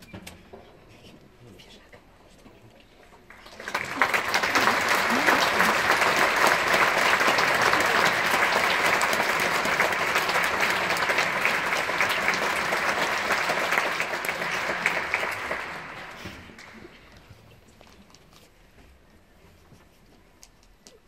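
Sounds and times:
audience applauding: 3.3 - 17.2.

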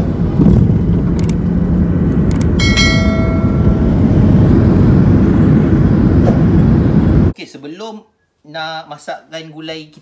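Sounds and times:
airliner cabin rumble: 0.0 - 7.3
bell-like ding: 2.6 - 4.0.

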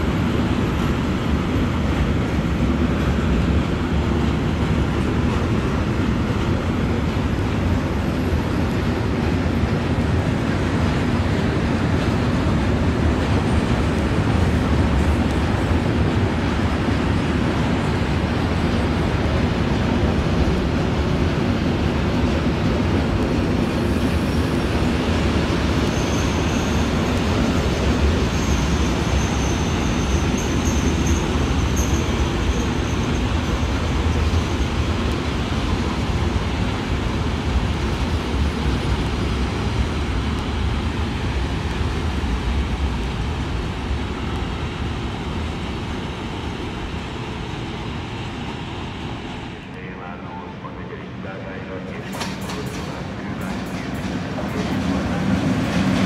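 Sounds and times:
train wheels rumbling on rails: 0.0 - 56.0
high wheel squeal: 25.9 - 33.8.

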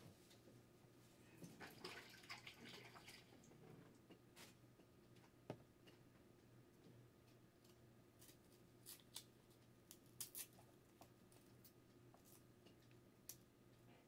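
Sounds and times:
low steady hum: 0.0 - 14.0
knife peeling garlic: 8.2 - 11.2.

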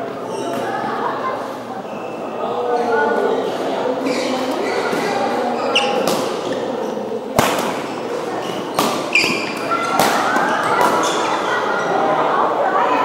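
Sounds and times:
murmur of voices: 0.0 - 13.0
shoes squeaking on court floor: 4.0 - 7.1, 7.7 - 11.9
rackets hitting shuttlecock: 5.8 - 6.6, 7.4 - 7.9, 8.5 - 11.2.

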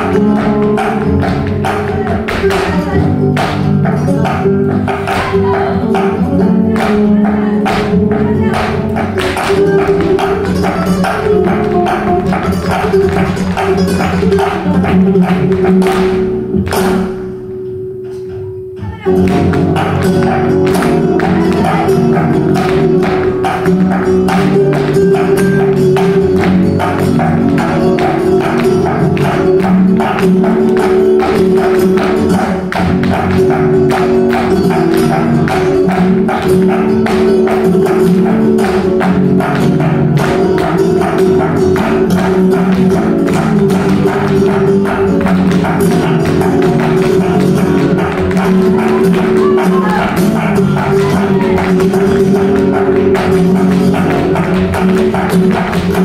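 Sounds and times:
flamenco music: 0.0 - 56.0
shoes tapping on stage floor: 0.0 - 56.0.

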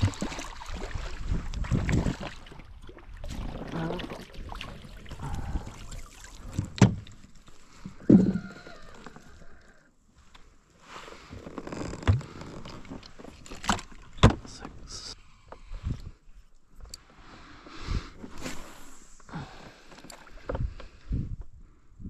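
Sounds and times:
fish thrashing and splashing: 0.0 - 9.4.

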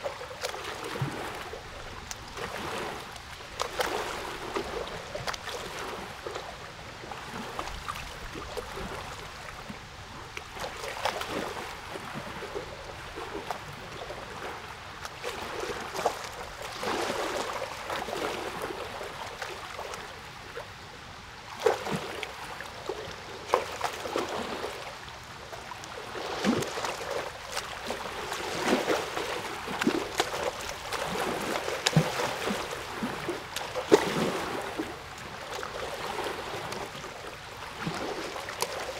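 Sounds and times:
water running and splashing: 26.1 - 37.0.

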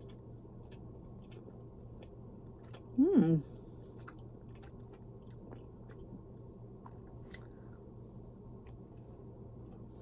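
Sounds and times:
person chewing cookie: 0.0 - 7.8
steady low hum: 0.0 - 10.0.

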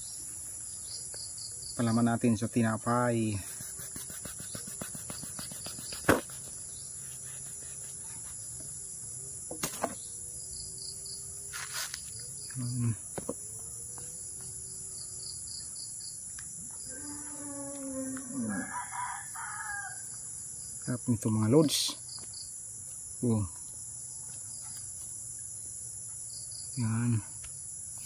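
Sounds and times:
crickets chirping: 0.0 - 28.0
rooster crowing: 16.9 - 20.2.

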